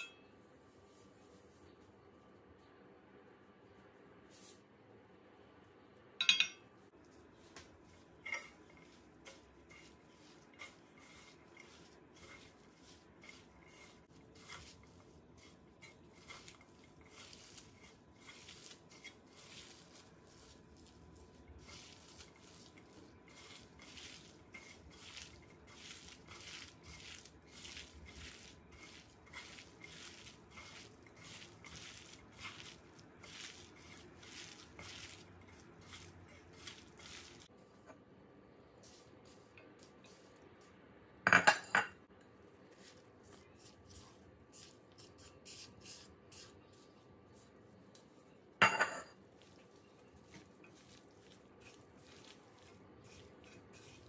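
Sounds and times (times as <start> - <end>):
metal spoon clinking on pan: 6.2 - 6.7
hands squishing potato: 6.9 - 37.6, 49.2 - 54.0.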